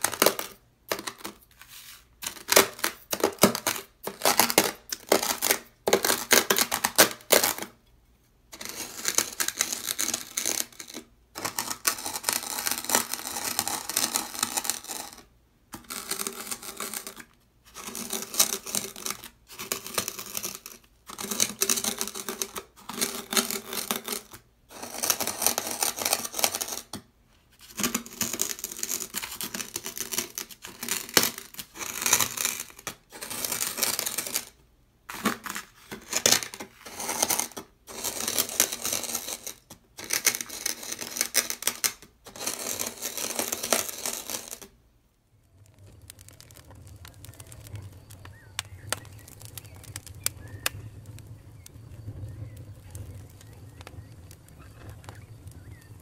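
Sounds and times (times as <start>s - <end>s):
sand crunching on sandpaper: 1.6s - 2.1s.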